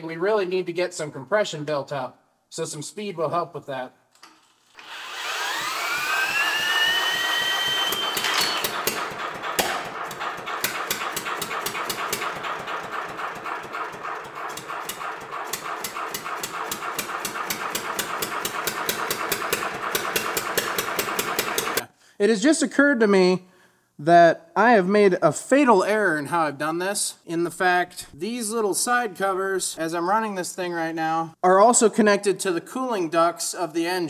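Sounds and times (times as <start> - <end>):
cordless drill whining: 4.7 - 9.0
engine running with knocking beat: 6.3 - 21.8.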